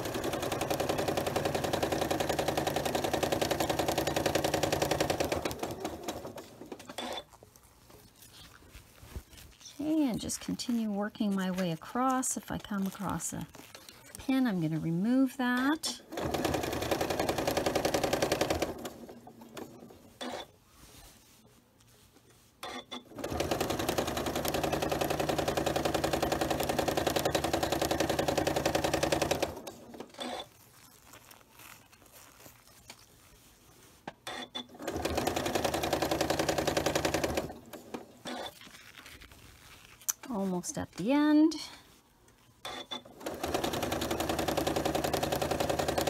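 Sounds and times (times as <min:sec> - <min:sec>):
sewing machine stitching: 0:00.0 - 0:07.3, 0:09.8 - 0:20.5, 0:22.6 - 0:30.9, 0:34.2 - 0:38.7, 0:42.6 - 0:46.0.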